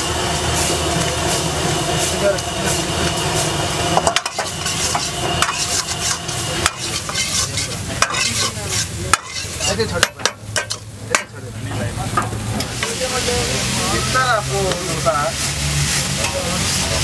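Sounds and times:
chicken sizzling in a wok: 0.0s - 17.0s
steel ladle scraping a pan: 2.7s - 11.3s
ladle clacking against pan: 4.0s - 11.3s.

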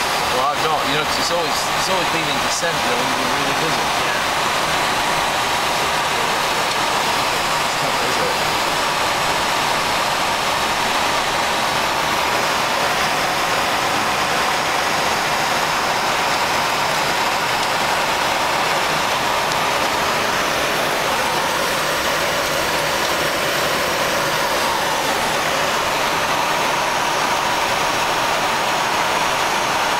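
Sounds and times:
cockpit airflow and air-conditioning hiss: 0.0s - 29.9s.

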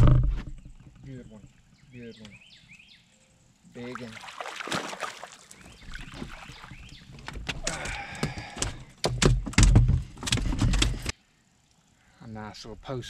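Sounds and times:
fish splashing: 3.8s - 7.2s
heavy thumps and handling noise: 7.2s - 11.1s.

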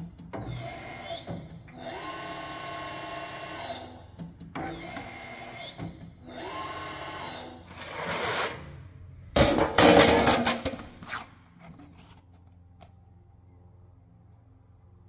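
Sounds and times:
sheet metal scraping: 7.6s - 8.8s, 9.4s - 12.2s.

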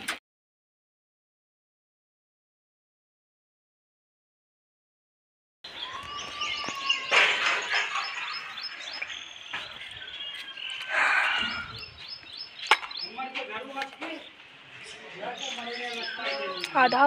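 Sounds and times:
small birds chirping: 5.6s - 17.0s.

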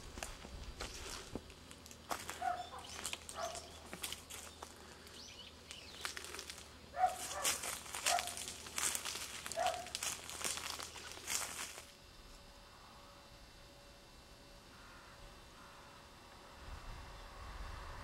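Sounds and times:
footsteps crunching on dry leaves: 0.0s - 12.0s.

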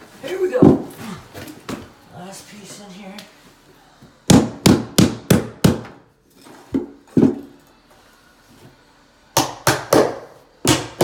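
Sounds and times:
hammer striking nails into wood: 4.3s - 6.0s.

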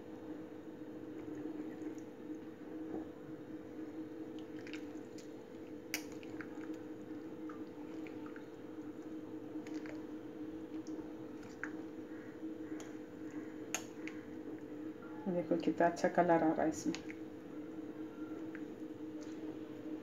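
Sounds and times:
steady low hum: 0.0s - 20.0s
wet batter squishing: 4.0s - 14.9s.

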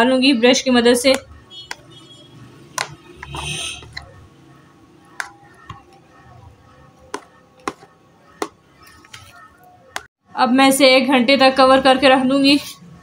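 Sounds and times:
brush tapping plastic: 1.0s - 1.9s, 2.8s - 4.3s, 5.0s - 10.1s.

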